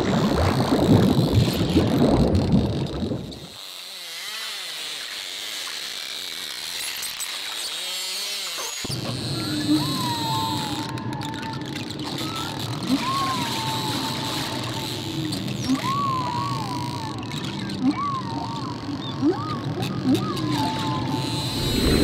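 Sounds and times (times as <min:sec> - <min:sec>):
sea water splashing: 0:00.0 - 0:03.5, 0:21.4 - 0:22.0
low wavering underwater calls: 0:09.2 - 0:22.0.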